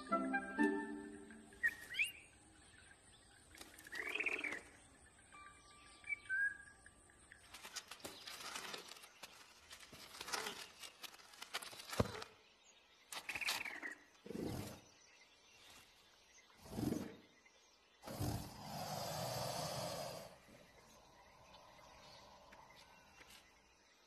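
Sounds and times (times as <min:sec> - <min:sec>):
large creature growls: 0:18.0 - 0:20.7.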